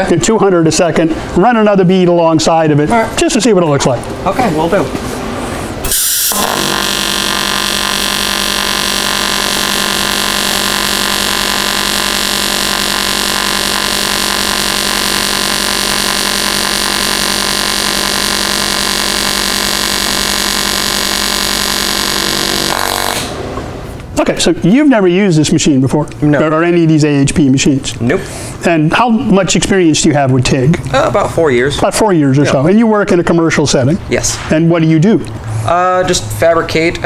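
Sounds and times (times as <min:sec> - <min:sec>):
welding arc buzzing: 0:05.8 - 0:23.7.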